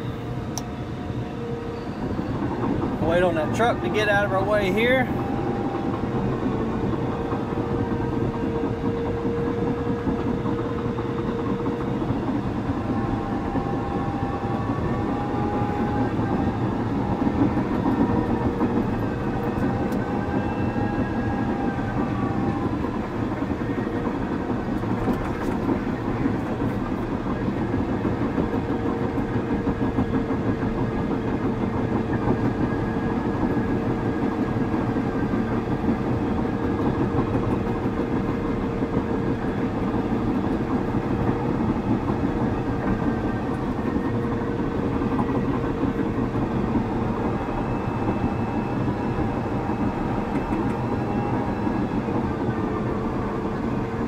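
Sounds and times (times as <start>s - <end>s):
diesel engine running: 0.0s - 54.0s
steady whine: 0.0s - 54.0s.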